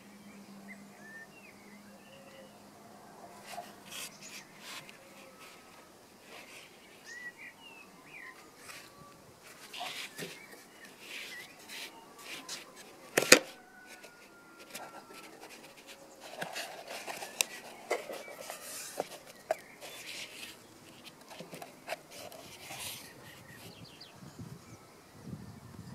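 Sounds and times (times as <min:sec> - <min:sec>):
cardboard box scraping and rustling: 0:03.4 - 0:07.3, 0:08.6 - 0:23.8.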